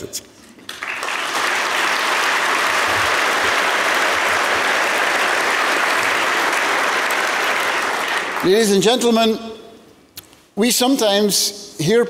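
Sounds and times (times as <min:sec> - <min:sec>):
large audience applauding: 0:00.7 - 0:08.9.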